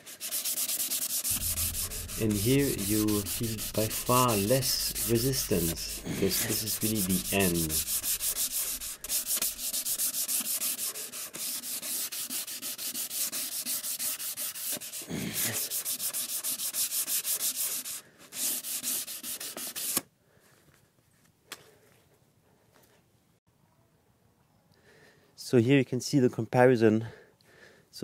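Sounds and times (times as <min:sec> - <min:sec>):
sandpaper rubbing on wood: 0:00.0 - 0:20.0.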